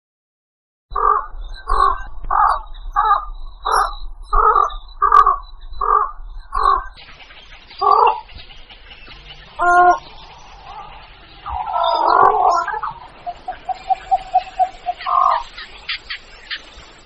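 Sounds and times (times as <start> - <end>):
heron calling: 0.9 - 16.9
steady hiss: 12.9 - 17.0.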